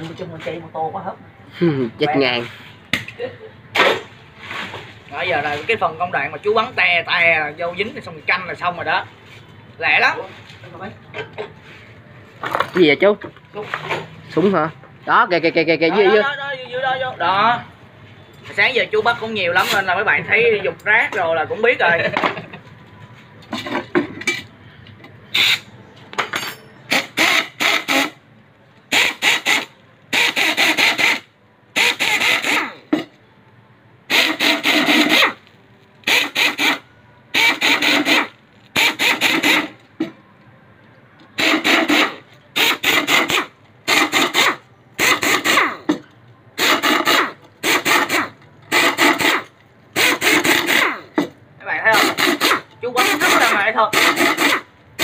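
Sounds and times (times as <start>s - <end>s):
file rasping on metal: 41.4s - 45.8s, 46.6s - 51.2s, 51.9s - 54.7s.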